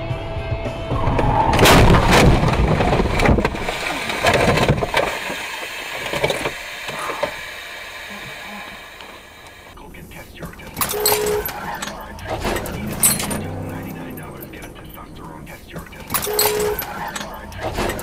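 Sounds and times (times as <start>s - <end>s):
bangs and rattling: 0.9s - 7.4s, 10.7s - 18.0s
heavy car crash impacts: 1.0s - 7.1s, 10.8s - 18.0s.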